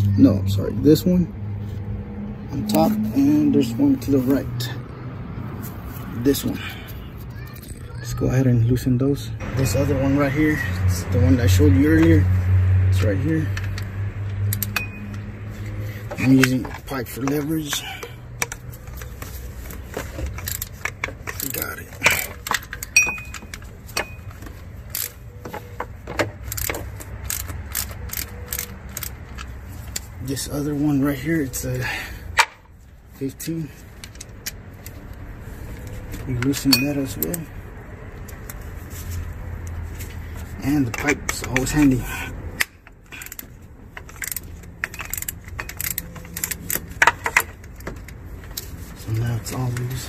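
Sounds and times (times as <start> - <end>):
ratchet clicking: 13.5 - 17.8, 18.4 - 25.2, 26.4 - 30.1, 42.6 - 48.7
metallic clink ringing: 14.7 - 15.2, 22.9 - 24.3, 36.7 - 37.2
socket wrench clicking on a bolt: 26.4 - 30.1, 42.6 - 48.6.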